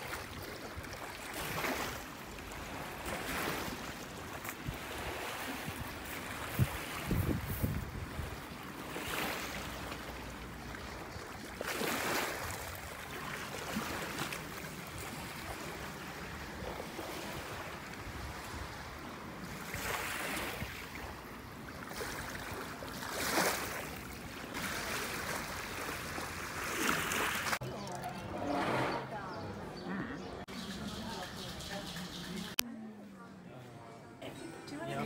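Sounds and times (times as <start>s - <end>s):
wind on microphone: 5.6s - 8.4s.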